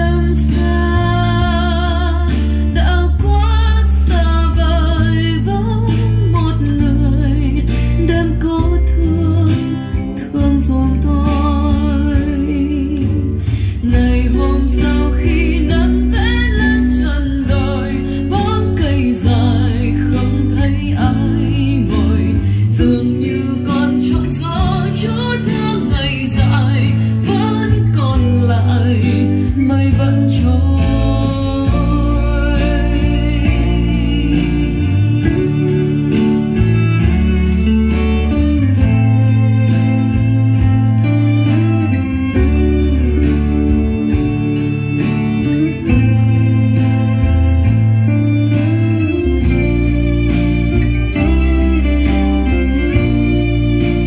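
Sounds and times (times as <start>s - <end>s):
song with voice and guitar: 0.0s - 54.0s.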